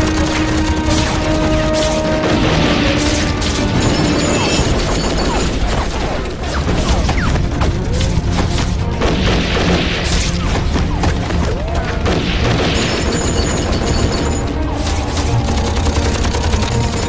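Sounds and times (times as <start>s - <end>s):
dramatic orchestral score: 0.0s - 17.0s
gunfire: 0.0s - 17.0s
explosions: 1.0s - 14.4s.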